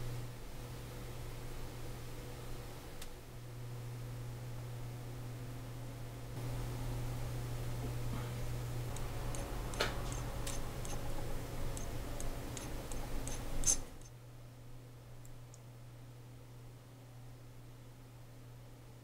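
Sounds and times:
steady low hum: 0.0s - 19.0s
sharp tweezers clicks: 8.9s - 11.1s, 11.7s - 14.1s.

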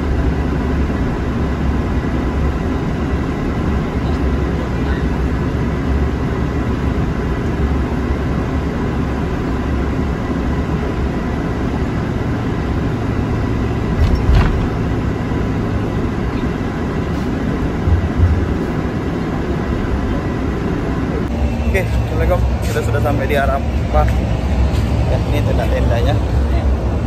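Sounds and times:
bus engine and road noise: 0.0s - 27.0s
bus bumps: 13.8s - 20.7s.

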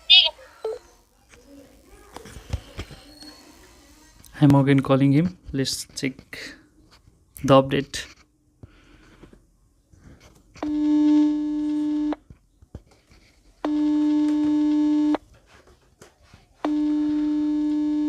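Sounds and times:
phone ringing tone beeps: 0.0s - 0.3s, 16.7s - 18.0s.

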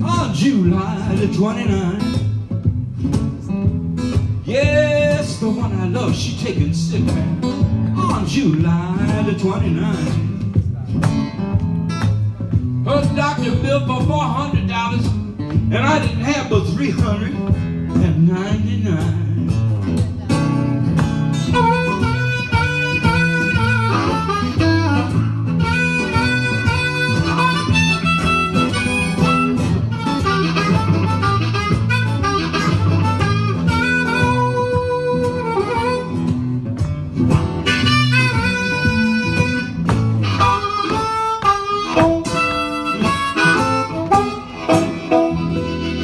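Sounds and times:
acoustic guitar accompaniment: 0.0s - 46.0s
blues harmonica solo: 20.4s - 46.0s.

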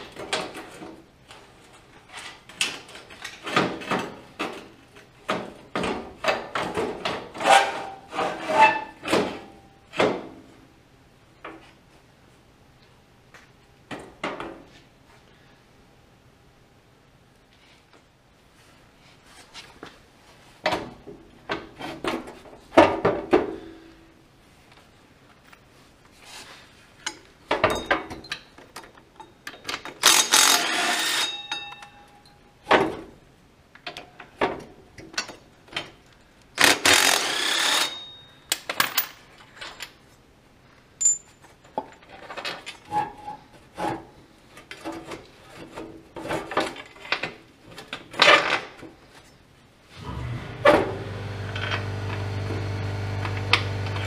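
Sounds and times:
metal tools clanking: 31.2s - 32.4s, 41.0s - 42.0s.

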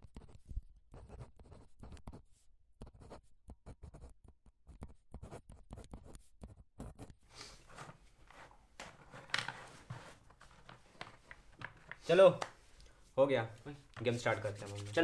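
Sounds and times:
pen scratching on paper: 0.0s - 10.2s, 14.0s - 15.0s.

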